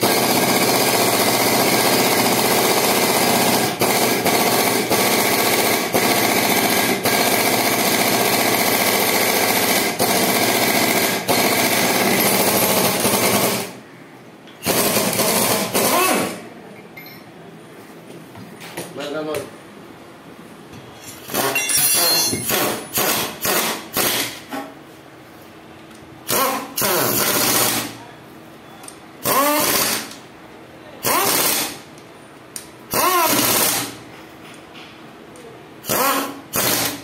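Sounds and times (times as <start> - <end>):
loud rattling machine running: 0.0 - 13.8, 14.6 - 16.4, 32.9 - 34.0.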